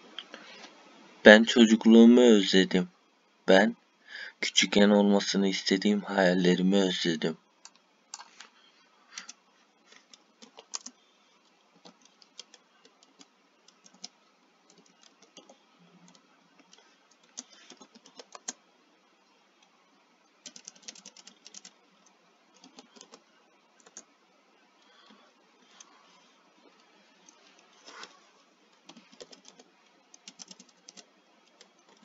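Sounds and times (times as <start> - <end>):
computer keyboard typing: 9.2 - 11.0, 11.8 - 18.6, 20.4 - 21.8, 22.6 - 24.1, 26.8 - 32.0.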